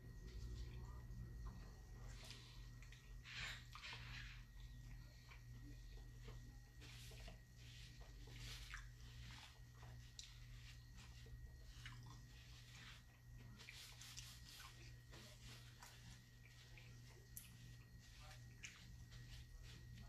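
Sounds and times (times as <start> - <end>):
man chewing food: 1.4 - 20.0
paper napkin rustling: 6.2 - 20.0.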